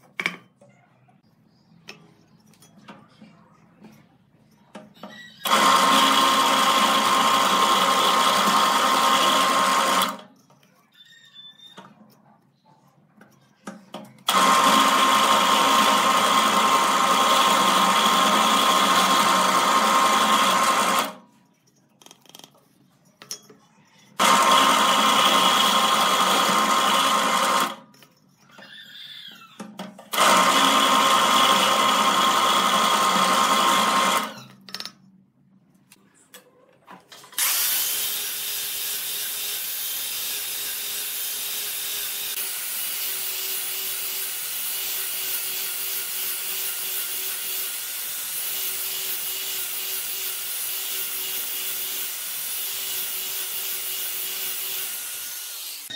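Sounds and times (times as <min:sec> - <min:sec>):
drill press drilling wood: 0:05.4 - 0:10.2, 0:14.3 - 0:21.2, 0:24.2 - 0:27.8, 0:30.1 - 0:34.3, 0:37.4 - 0:55.9.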